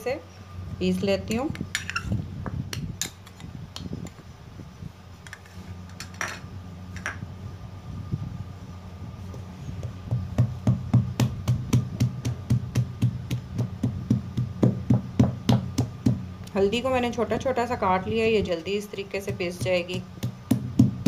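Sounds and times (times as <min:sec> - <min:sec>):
wooden pestle pounding in mortar: 0:10.0 - 0:16.3, 0:19.3 - 0:21.0.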